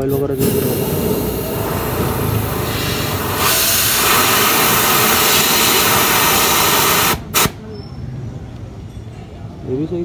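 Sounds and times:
loud steady hiss: 0.0s - 7.6s.

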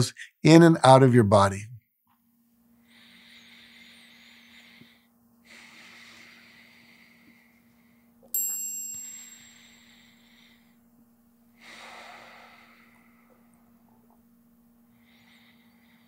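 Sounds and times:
soft breathing: 2.8s - 8.3s, 8.9s - 10.9s, 11.5s - 14.1s, 14.8s - 16.0s
bright metallic chime: 8.3s - 9.8s.

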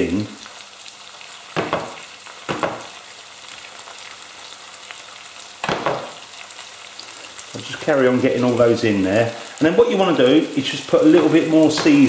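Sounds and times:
food sizzling in frying pan: 0.0s - 12.0s
utensil moving food in pan: 5.6s - 7.6s, 10.2s - 12.0s.

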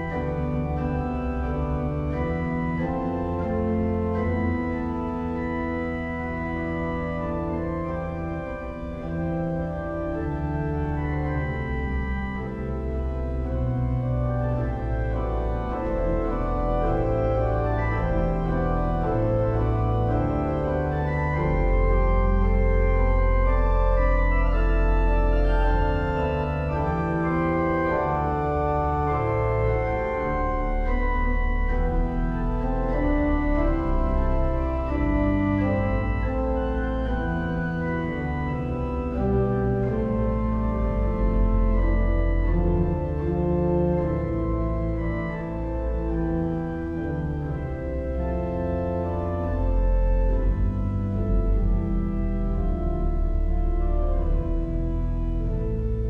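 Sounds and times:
church organ chords: 0.0s - 56.0s
deep organ pedal bass: 0.0s - 56.0s.

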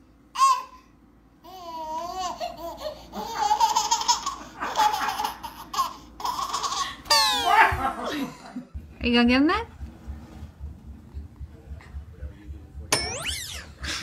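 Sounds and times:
baby laughing: 1.4s - 8.2s.

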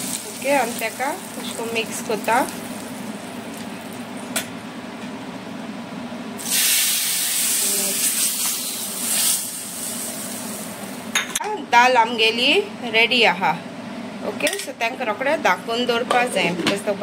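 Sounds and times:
hot pan sizzling: 0.0s - 4.4s, 6.4s - 11.2s.

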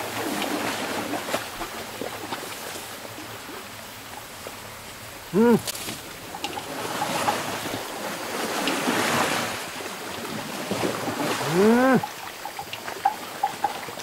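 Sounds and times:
elephant splashing through water: 0.0s - 14.0s
elephant call: 5.3s - 7.5s, 11.4s - 12.1s.

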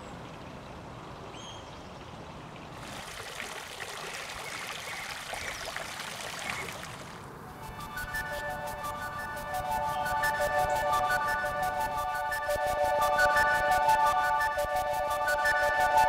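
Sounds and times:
fountain water splashing: 0.0s - 7.4s
bird chirp: 1.3s - 2.0s
music: 7.6s - 16.0s.

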